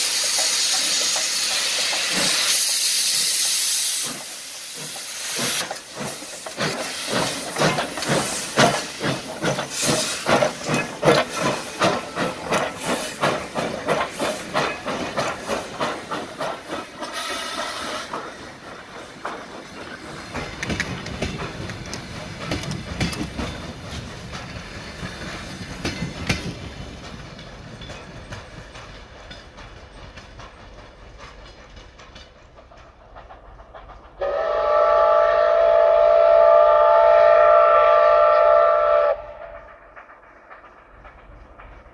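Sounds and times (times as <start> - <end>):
hissing steam: 0.0 - 41.9
steam locomotive exhaust chuffs: 0.0 - 41.9
wheel clicks over rail joints: 4.8 - 34.2
train whistle: 17.1 - 18.1, 34.2 - 39.8.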